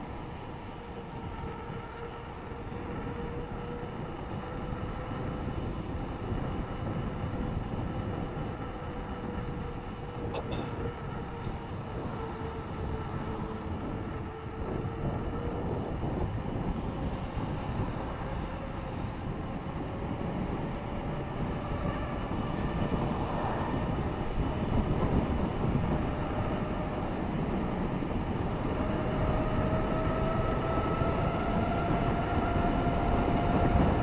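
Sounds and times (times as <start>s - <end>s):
bike tyres rolling on asphalt: 0.0s - 34.0s
wind on microphone: 0.0s - 34.0s.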